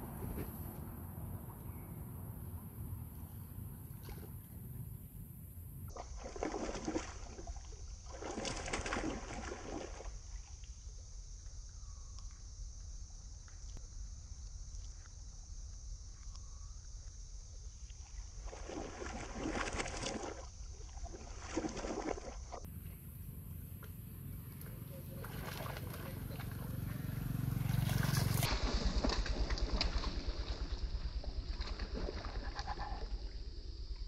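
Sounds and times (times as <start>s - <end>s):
water splashing and sloshing: 3.6s - 5.0s, 5.9s - 11.0s, 17.4s - 22.7s, 23.6s - 34.0s
low rumble: 22.7s - 34.0s.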